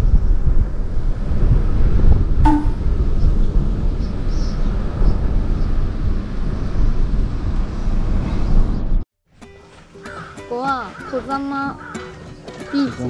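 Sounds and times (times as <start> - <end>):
wind buffeting and road noise: 0.0 - 9.0.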